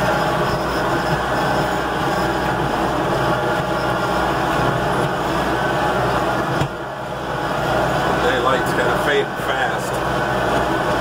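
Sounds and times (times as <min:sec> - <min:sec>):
vehicle running and rattling: 0:00.0 - 0:11.0.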